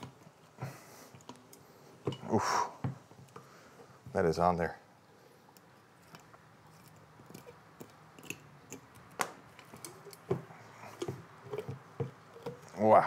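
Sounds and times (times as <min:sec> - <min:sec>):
small clicks and knocks: 0:01.1 - 0:02.3, 0:05.5 - 0:12.8.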